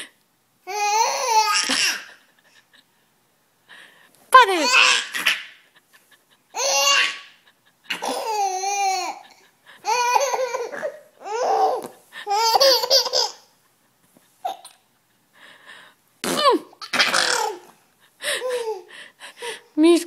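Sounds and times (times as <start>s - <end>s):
baby laughing: 0.7s - 2.4s, 4.6s - 13.6s, 14.4s - 14.9s, 16.8s - 17.7s.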